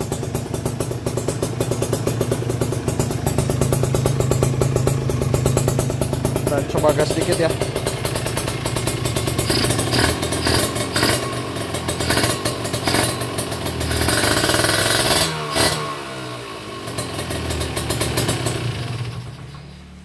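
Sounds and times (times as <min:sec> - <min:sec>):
motorcycle engine revving: 0:00.0 - 0:19.5.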